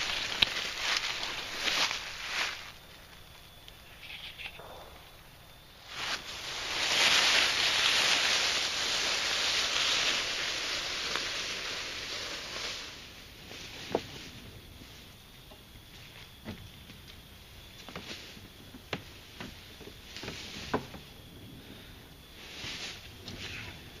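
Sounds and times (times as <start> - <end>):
leaves rustling and crunching: 0.0 - 3.6, 5.5 - 15.2, 17.6 - 21.3, 22.3 - 24.0.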